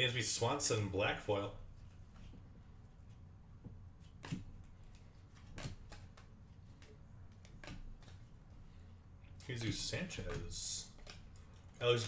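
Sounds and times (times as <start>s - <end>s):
low steady hum: 0.0s - 12.0s
trading cards flipped by hand: 3.9s - 8.4s.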